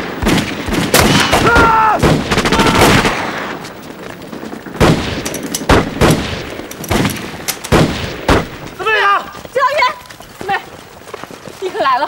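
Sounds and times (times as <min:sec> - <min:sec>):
gunshots: 0:00.0 - 0:03.7, 0:04.3 - 0:08.8.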